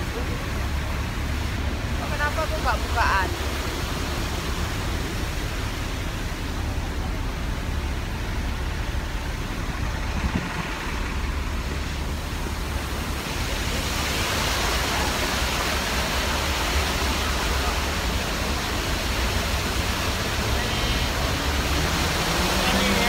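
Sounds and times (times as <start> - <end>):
fountain water rushing: 0.0 - 23.0
street traffic: 0.0 - 23.0
wind rumble on microphone: 2.8 - 17.4.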